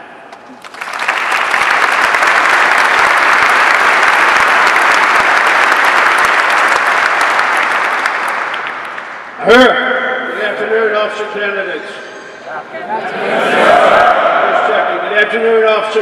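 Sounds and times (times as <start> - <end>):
audience applauding: 0.4 - 9.4.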